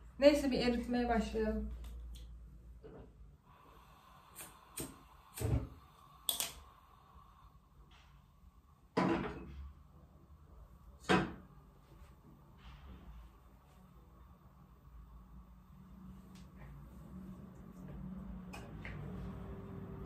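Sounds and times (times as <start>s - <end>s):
kitchen knocks and clunks: 9.0s - 9.6s, 11.0s - 11.5s.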